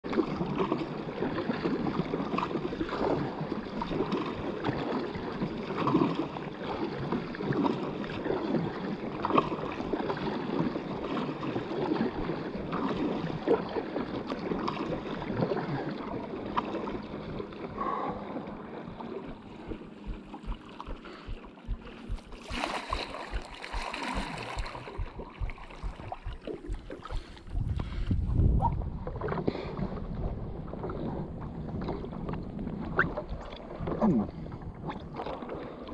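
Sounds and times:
water splashing around paddleboard: 0:00.0 - 0:35.9
wind buffeting microphone: 0:16.8 - 0:35.2.

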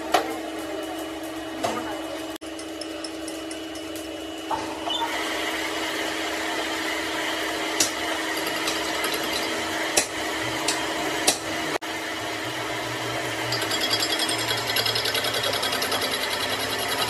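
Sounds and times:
electric power tool running: 0:05.1 - 0:17.0.

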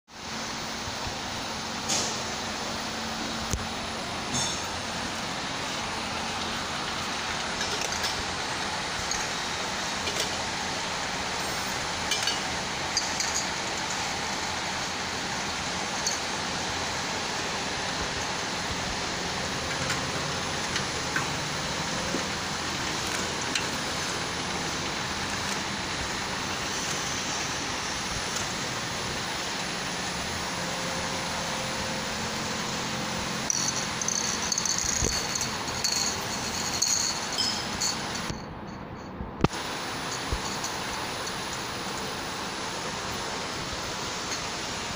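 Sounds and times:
machine whirring: 0:00.7 - 0:44.9
glass bottles clinking: 0:07.4 - 0:08.4, 0:09.0 - 0:10.4, 0:12.0 - 0:14.4, 0:16.0 - 0:16.8, 0:33.4 - 0:38.9, 0:40.0 - 0:41.3.

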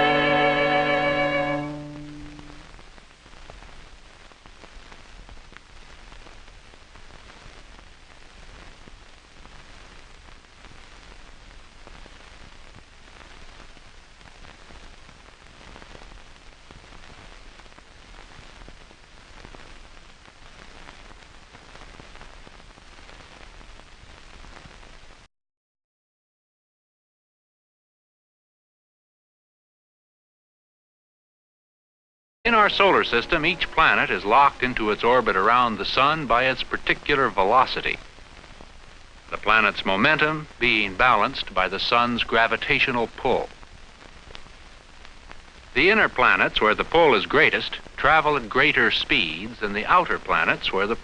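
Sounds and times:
film soundtrack hiss with crackles: 0:00.0 - 0:25.3, 0:32.5 - 0:51.0.

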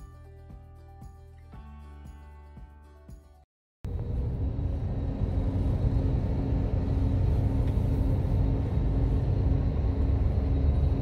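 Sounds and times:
background music: 0:00.0 - 0:03.4
bus engine rumbling: 0:03.9 - 0:11.0.

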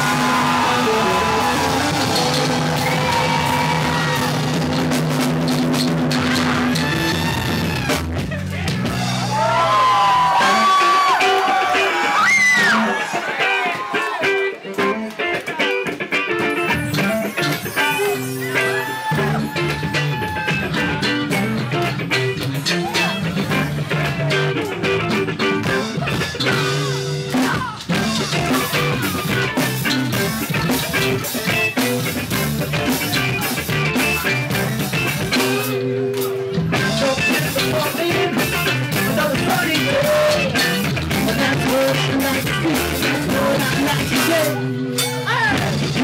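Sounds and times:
bass guitar: 0:00.0 - 0:46.0
drum kit: 0:00.0 - 0:46.0
electric guitar: 0:00.0 - 0:46.0
person singing: 0:32.7 - 0:46.0.

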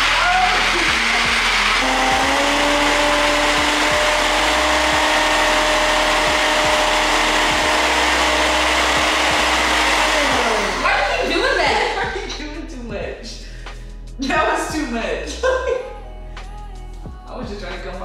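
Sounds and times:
blender whirring: 0:00.0 - 0:12.1.

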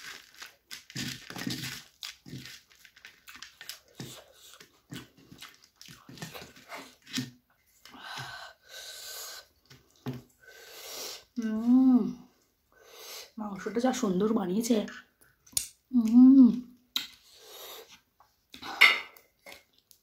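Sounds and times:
puffed rice crackling and crunching: 0:00.0 - 0:07.2.

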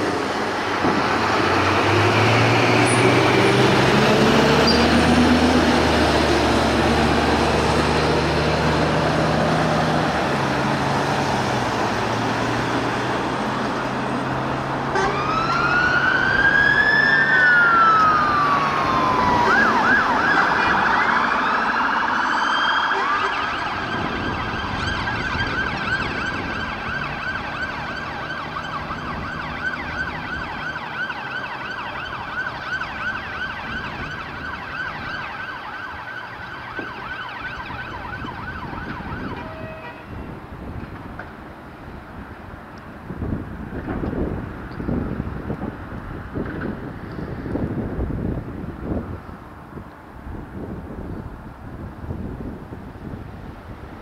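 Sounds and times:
emergency siren wailing and yelping: 0:14.9 - 0:40.2.

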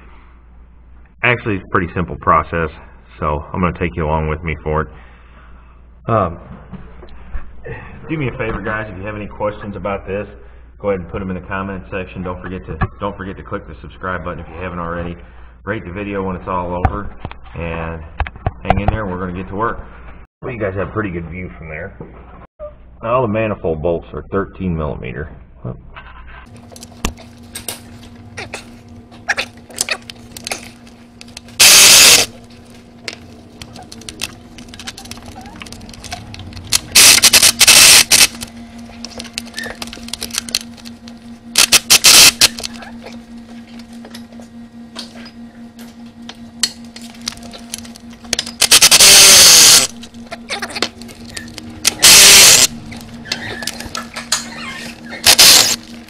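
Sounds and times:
steady low hum: 0:00.0 - 0:56.0
power tool bursts: 0:31.6 - 0:32.4, 0:36.7 - 0:38.4, 0:41.6 - 0:42.7, 0:48.6 - 0:50.1, 0:51.8 - 0:53.0, 0:55.2 - 0:55.9.

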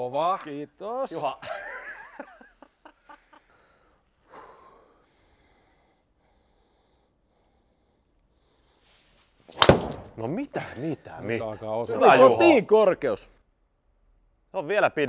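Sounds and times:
short breath: 0:03.5 - 0:09.3.

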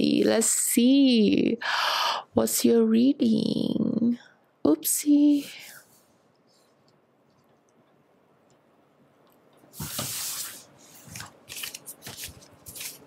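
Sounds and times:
cards being riffled: 0:11.0 - 0:13.0
cards clicking and rustling: 0:11.1 - 0:13.0.

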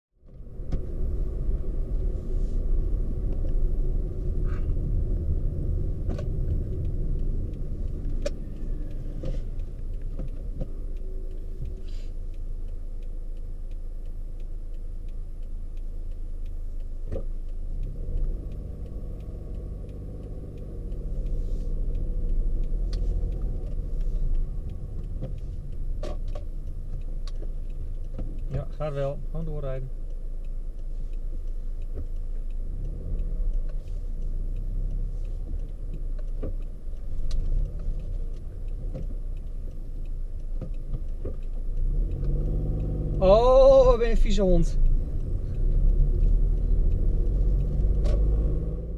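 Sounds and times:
car engine and road rumble: 0:00.1 - 0:48.9
light clicks and knocks: 0:17.0 - 0:30.2.

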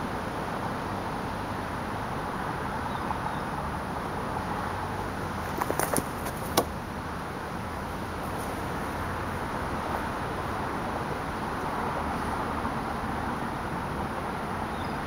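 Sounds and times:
outdoor background hiss: 0:00.0 - 0:15.0
running footsteps: 0:05.4 - 0:06.8
hands slapping table top: 0:05.5 - 0:06.7.

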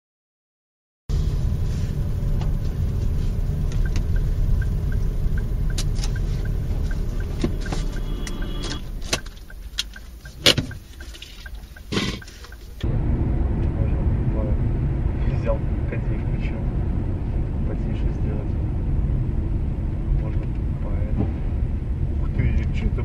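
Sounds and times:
road and engine rumble: 0:01.1 - 0:23.0
fast even ticking: 0:03.7 - 0:12.8
sharp clicks: 0:05.6 - 0:12.8.

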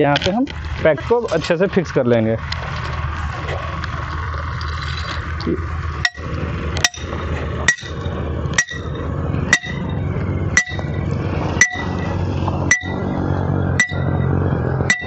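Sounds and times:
hammer striking steel rod: 0:06.0 - 0:10.0, 0:10.6 - 0:11.0, 0:11.6 - 0:13.2, 0:13.8 - 0:15.0.

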